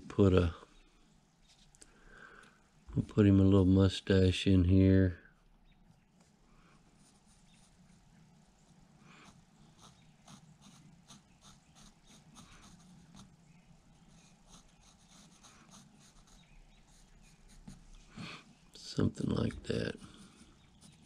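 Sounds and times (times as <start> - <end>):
faint steady low hum: 0.0 - 21.0
pencil scratching on wood: 9.1 - 18.0, 19.5 - 21.0.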